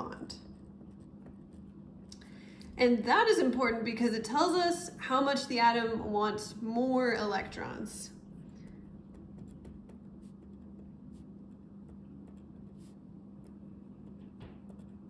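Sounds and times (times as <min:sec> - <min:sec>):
steady low hum: 0:00.0 - 0:15.0
pen scratching on paper: 0:00.5 - 0:01.9, 0:08.6 - 0:15.0.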